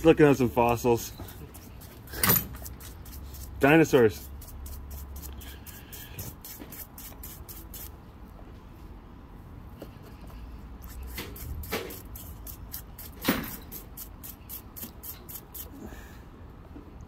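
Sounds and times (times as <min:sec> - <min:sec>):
brush scrubbing: 0:00.2 - 0:07.9, 0:10.8 - 0:15.7.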